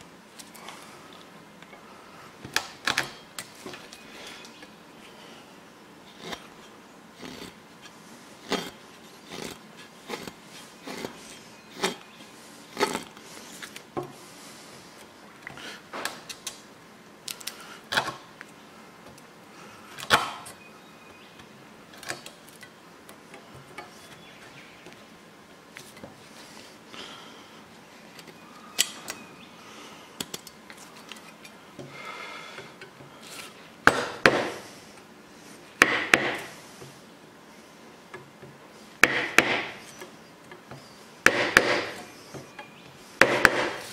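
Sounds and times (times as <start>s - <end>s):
blade scraping wood: 6.0s - 13.8s
machete chopping wood: 33.9s - 34.6s, 35.8s - 36.5s, 39.0s - 39.8s, 41.3s - 42.0s, 43.2s - 43.8s.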